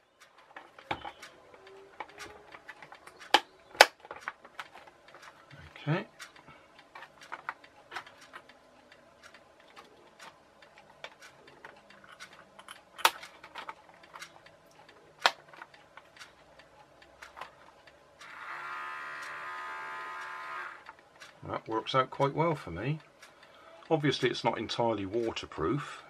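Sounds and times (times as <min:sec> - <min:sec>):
plastic toy parts clicking: 0:00.0 - 0:05.6, 0:06.2 - 0:16.4.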